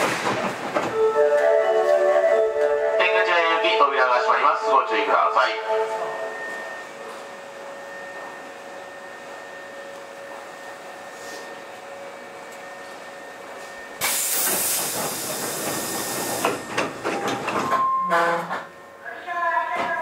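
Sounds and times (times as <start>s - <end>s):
electric train hum: 0.0s - 20.0s
compressed air hissing: 14.0s - 16.6s.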